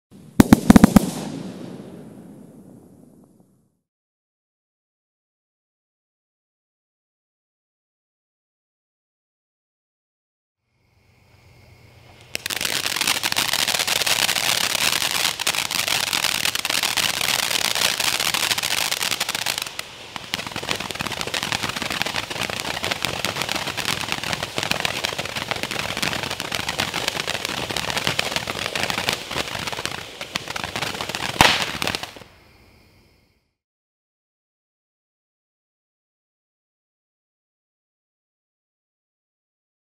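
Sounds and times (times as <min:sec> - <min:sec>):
sharp firework pop: 0:00.4 - 0:03.5, 0:31.4 - 0:32.0
firework spraying hissing sparks: 0:00.6 - 0:01.4, 0:12.2 - 0:32.2.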